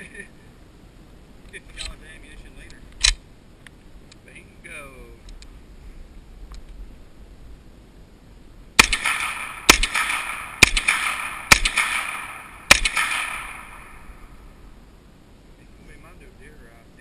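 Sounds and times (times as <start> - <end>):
rifle shots with ringing echo: 8.8 - 14.8.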